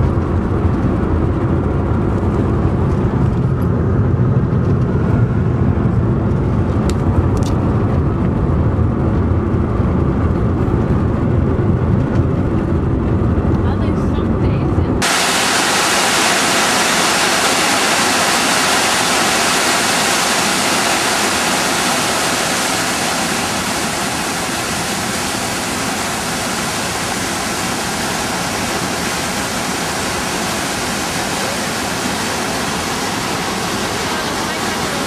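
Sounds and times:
river water rushing: 15.0s - 35.0s.

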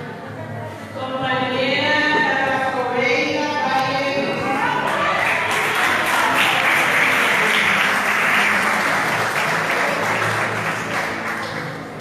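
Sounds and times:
people applauding: 4.5s - 12.0s.

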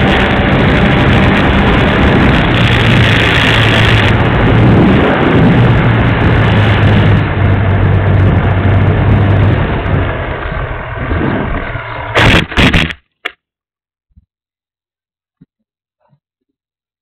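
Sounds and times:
electric motor and propeller hum: 0.0s - 13.0s
wind rushing over camera: 0.0s - 13.0s.

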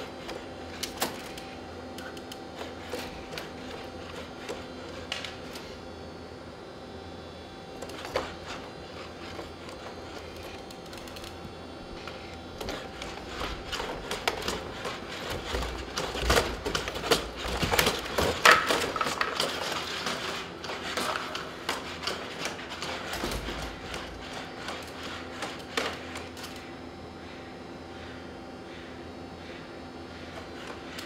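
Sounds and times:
robot dog feet clattering on concrete: 7.8s - 26.7s.

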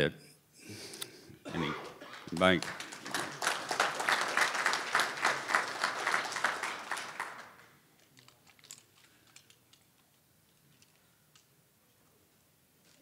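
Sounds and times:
audience applauding: 1.8s - 7.8s.

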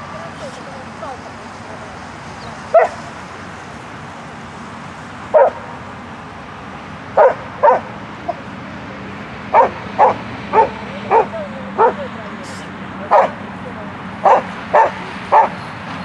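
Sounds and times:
dog barking: 2.7s - 3.1s, 5.3s - 5.7s, 7.2s - 8.4s, 9.5s - 12.1s, 13.1s - 13.4s, 14.2s - 15.6s.

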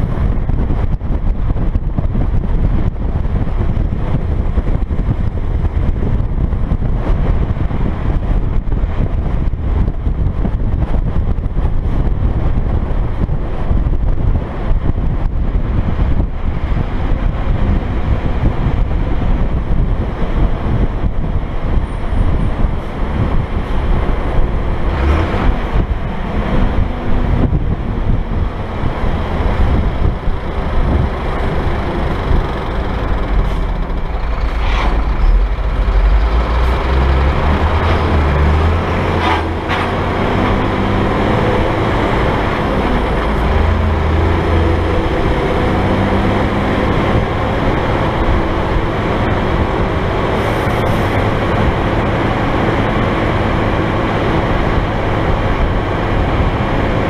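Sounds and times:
truck engine drone: 0.0s - 57.0s
tyres on road: 0.0s - 57.0s
wind buffeting microphone: 0.0s - 57.0s.

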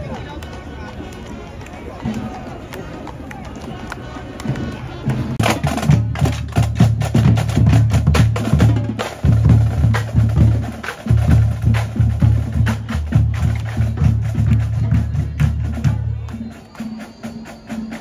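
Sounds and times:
fast parade drumming: 4.3s - 18.0s
heavy low drum beat: 4.4s - 16.6s.

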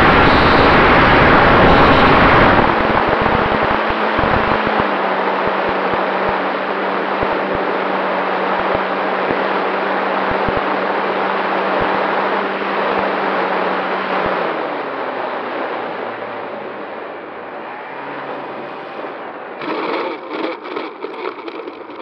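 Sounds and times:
wind rushing over camera: 0.0s - 6.4s
model plane motor humming: 19.6s - 22.0s.

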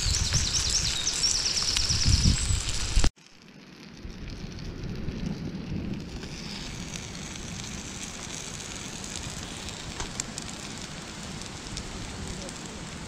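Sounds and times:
bacon sizzling in a frying pan: 6.0s - 13.0s.

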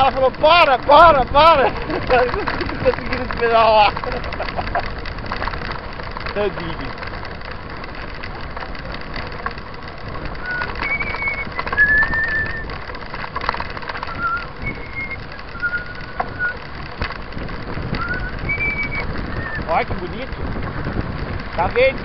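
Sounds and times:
bike tyres rolling on gravel: 0.0s - 22.0s
wind noise on camera: 0.0s - 22.0s
short whistled notes: 10.4s - 12.7s, 14.1s - 16.6s.

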